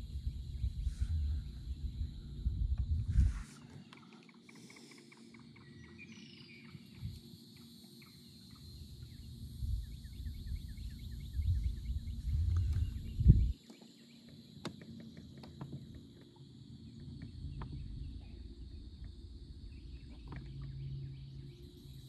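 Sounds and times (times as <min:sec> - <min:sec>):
low rumble: 0:00.0 - 0:03.5, 0:09.0 - 0:13.6.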